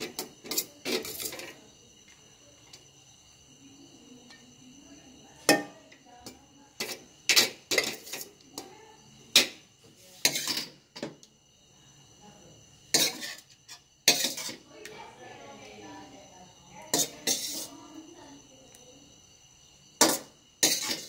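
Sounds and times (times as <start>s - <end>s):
faint steady high tone: 0.2s - 6.8s, 14.6s - 19.8s
metal spoon scraping steel pot: 6.8s - 8.7s, 10.2s - 10.7s, 12.9s - 14.6s, 16.9s - 17.7s, 20.0s - 21.0s.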